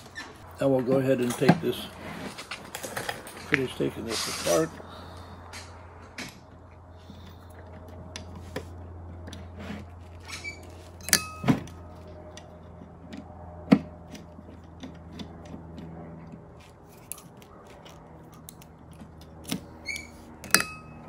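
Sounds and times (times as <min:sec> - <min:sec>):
low steady hum: 0:00.0 - 0:21.0
sharp metallic clinks: 0:11.0 - 0:11.8.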